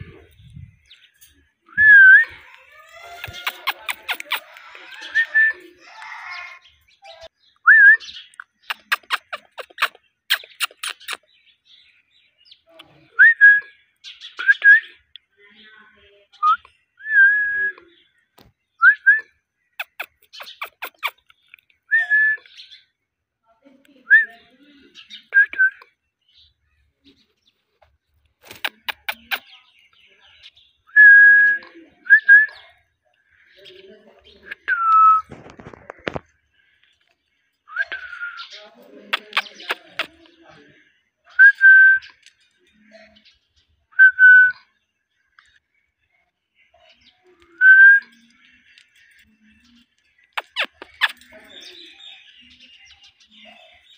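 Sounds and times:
parakeet sharp clicks: 3.2s - 4.7s, 8.4s - 11.2s, 19.8s - 21.3s, 28.4s - 29.4s, 50.4s - 51.2s.

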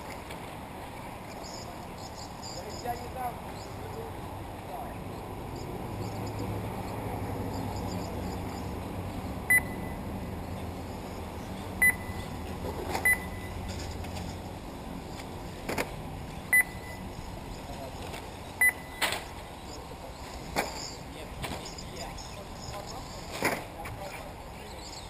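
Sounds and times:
steady track hum: 0.0s - 23.3s
short high beeps: 9.5s - 10.0s, 11.8s - 12.3s, 13.0s - 13.6s, 16.5s - 17.1s, 18.6s - 19.1s.

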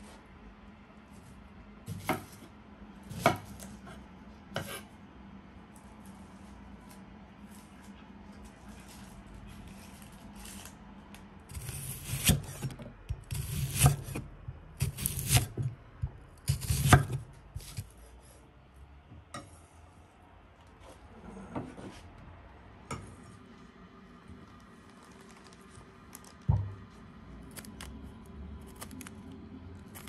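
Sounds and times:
knife slicing onion on board: 1.9s - 2.5s, 3.1s - 4.9s, 11.5s - 15.7s, 16.4s - 18.0s.

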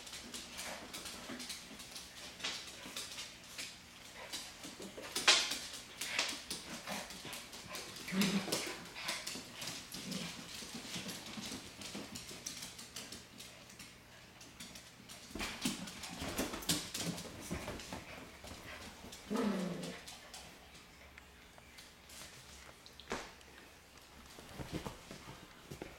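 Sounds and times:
dogs scuffling: 0.0s - 25.9s
dog claws clicking on hardwood floor: 0.1s - 20.5s
small dogs growling: 6.5s - 11.5s, 17.4s - 20.5s.

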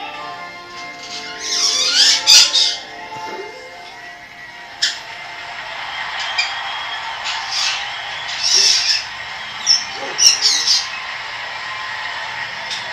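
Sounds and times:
bird squawking and chirping: 1.0s - 3.0s, 7.2s - 11.0s.

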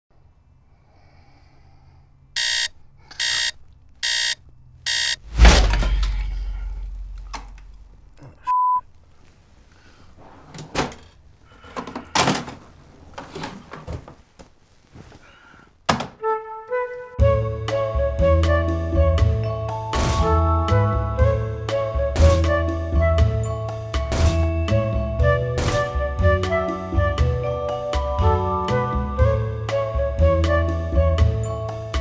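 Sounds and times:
alarm clock buzzing: 2.4s - 5.2s
short steady beep: 2.4s - 5.3s
heavy thud with rumble: 5.2s - 8.1s.

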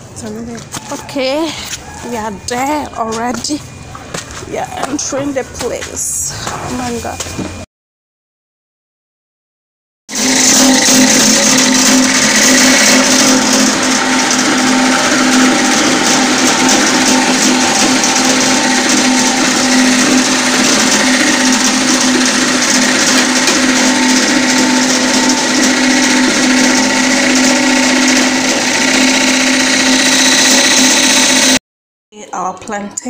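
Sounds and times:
grain mill grinding: 10.1s - 31.6s.

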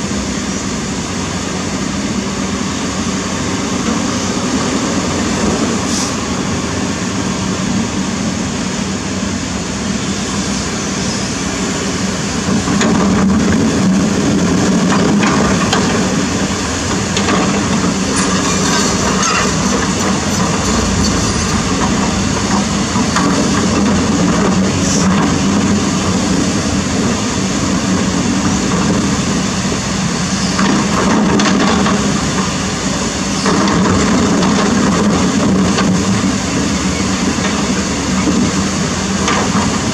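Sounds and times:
excavator diesel engine running: 0.0s - 39.9s
water rushing: 15.5s - 27.0s.

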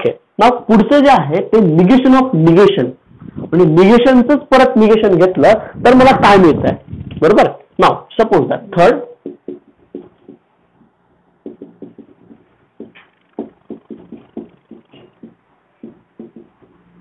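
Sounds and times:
marker writing on whiteboard: 9.0s - 17.0s.

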